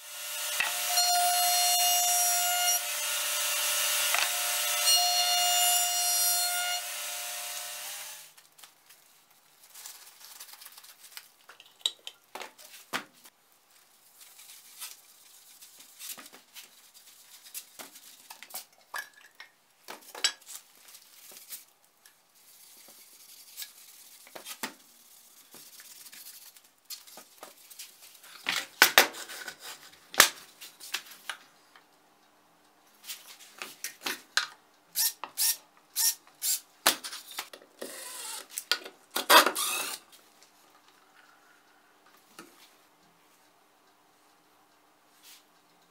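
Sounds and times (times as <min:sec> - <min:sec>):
wood rubbing strokes: 0:20.6 - 0:28.4.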